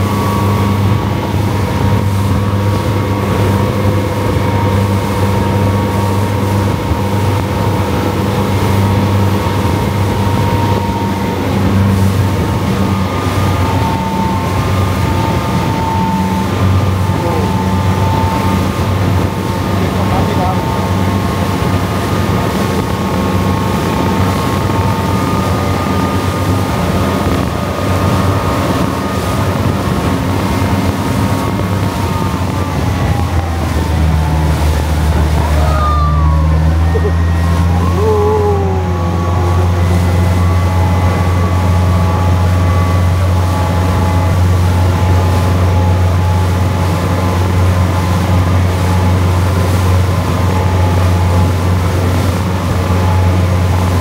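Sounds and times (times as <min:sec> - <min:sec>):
boat engine humming: 0:00.0 - 0:54.0.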